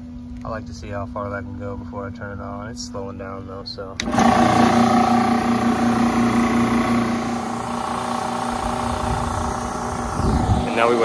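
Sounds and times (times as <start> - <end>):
compressor machine running: 4.0 - 11.0.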